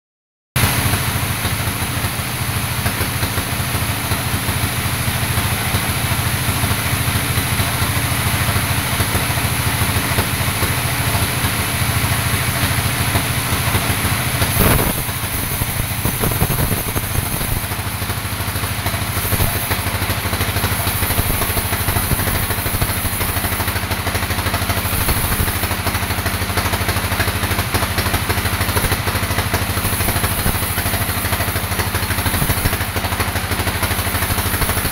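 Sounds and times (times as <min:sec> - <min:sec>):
band saw cutting log: 0:08.4 - 0:34.9.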